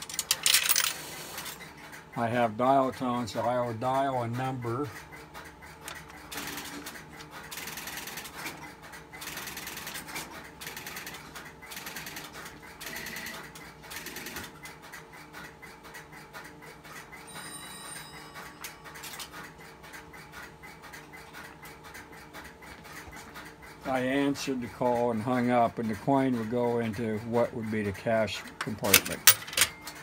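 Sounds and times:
mechanical rattling and clicking: 0:00.0 - 0:17.2, 0:18.9 - 0:30.0
telephone ringing: 0:17.2 - 0:19.5.

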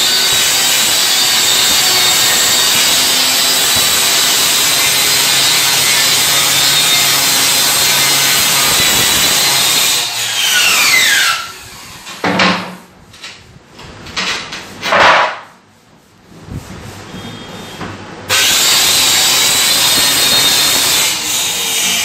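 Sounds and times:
circular saw cutting plywood: 0:00.0 - 0:12.2, 0:18.3 - 0:22.0.

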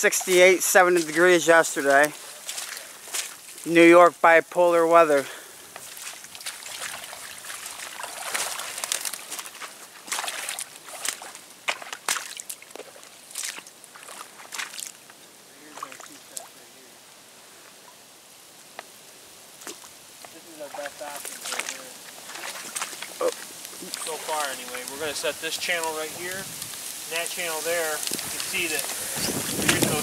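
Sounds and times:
water sloshing and trickling: 0:00.0 - 0:03.6, 0:05.8 - 0:16.6, 0:19.6 - 0:30.0.

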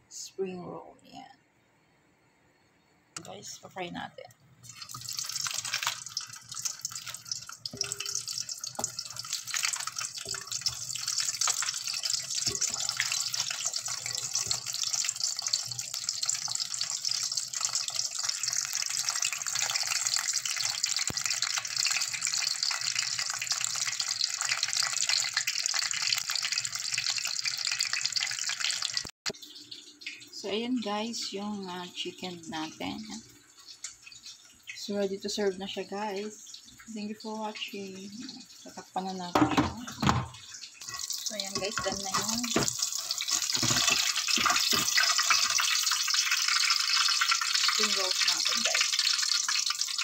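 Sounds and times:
spring rolls sizzling in oil: 0:04.6 - 0:39.4, 0:40.4 - 0:50.0.

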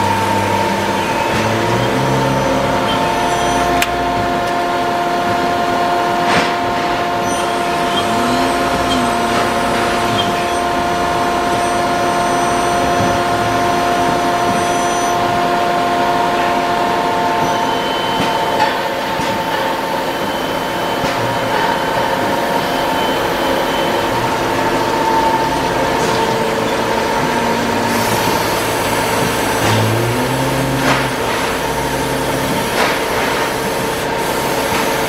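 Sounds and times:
machine shop equipment hum: 0:00.0 - 0:35.0
low rising and falling tone: 0:07.5 - 0:14.5, 0:23.3 - 0:32.7.

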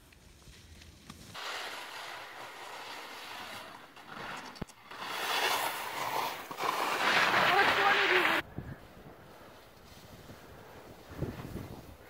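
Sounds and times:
skis sliding over snow: 0:00.0 - 0:08.4, 0:09.1 - 0:12.0
wind rumble on microphone: 0:08.4 - 0:09.3, 0:10.0 - 0:12.0.

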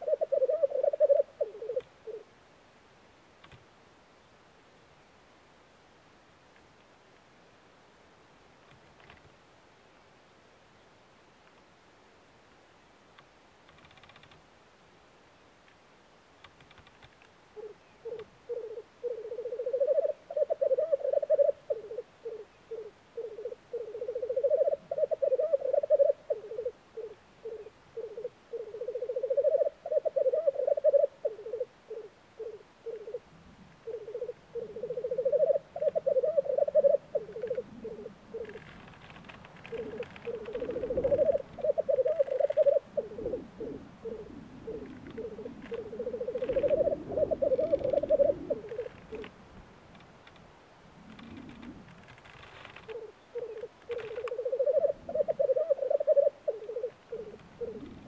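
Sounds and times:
grouse bubbling song: 0:17.6 - 0:38.9, 0:39.6 - 0:49.3, 0:52.8 - 0:58.0.

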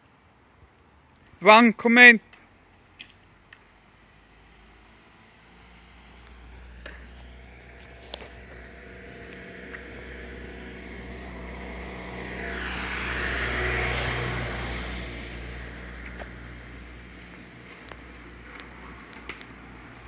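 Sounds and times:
car passing road noise: 0:02.5 - 0:20.0
car engine running: 0:04.0 - 0:20.0.

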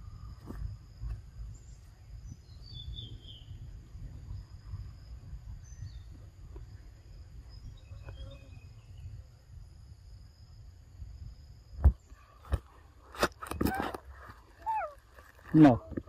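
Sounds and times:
high insect drone: 0:00.0 - 0:16.0
wind rumble on microphone: 0:00.0 - 0:16.0
bird chirps: 0:01.4 - 0:03.6, 0:04.3 - 0:06.2, 0:07.4 - 0:09.2, 0:14.6 - 0:15.0.

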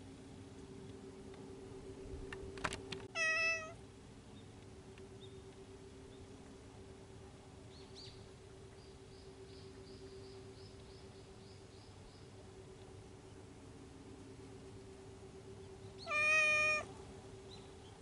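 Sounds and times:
steady low hum: 0:00.0 - 0:18.0
cat meowing: 0:03.2 - 0:03.8, 0:16.1 - 0:16.9.

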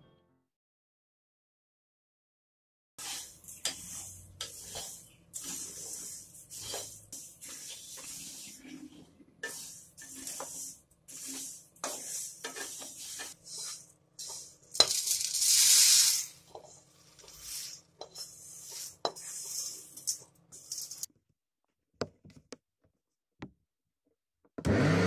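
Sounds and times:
seeds rattling in a pan: 0:12.1 - 0:21.1
seeds pouring onto plate: 0:14.7 - 0:16.4.

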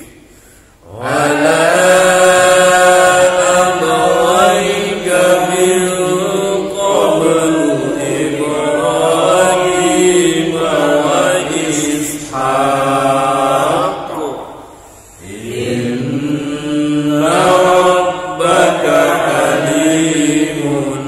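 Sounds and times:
man chanting melodic recitation: 0:00.9 - 0:14.6.

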